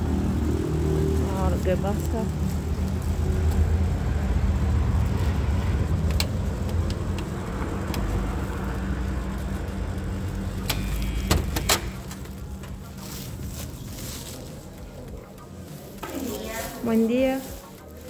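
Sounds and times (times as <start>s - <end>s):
sharp clicks and knocks: 6.0s - 8.2s.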